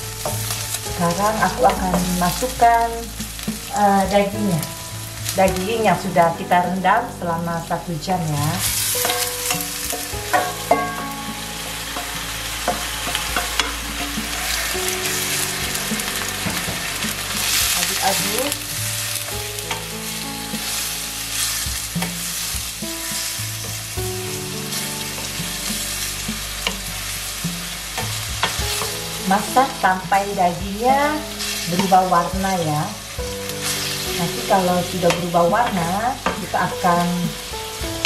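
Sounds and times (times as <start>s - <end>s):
wooden spoon stirring in a pan: 0.0s - 7.0s, 8.3s - 38.0s
meat and onions sizzling in oil: 0.0s - 38.0s
spoon knocking against a pan: 9.0s - 17.8s.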